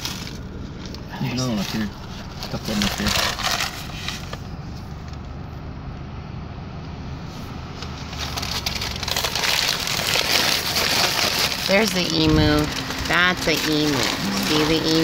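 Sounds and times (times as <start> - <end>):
car engine and tyres rumbling: 0.0 - 15.0
crackling noise: 7.8 - 15.0.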